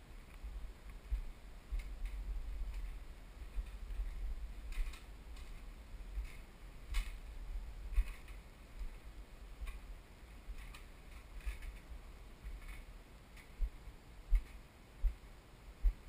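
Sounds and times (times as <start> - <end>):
handheld camera rumble: 0.0 - 16.0.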